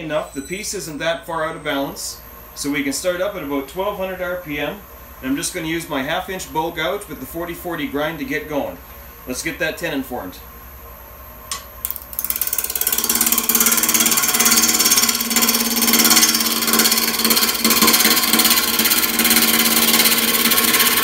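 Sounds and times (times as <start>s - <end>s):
lathe humming: 11.9s - 21.0s
gouge cutting wood rattling: 12.1s - 21.0s.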